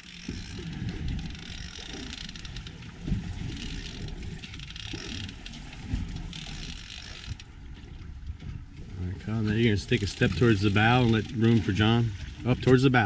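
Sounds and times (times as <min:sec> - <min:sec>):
fishing reel ratchet clicking: 0:00.0 - 0:02.9, 0:03.6 - 0:05.6, 0:06.2 - 0:07.5
wind noise on microphone: 0:00.3 - 0:01.6.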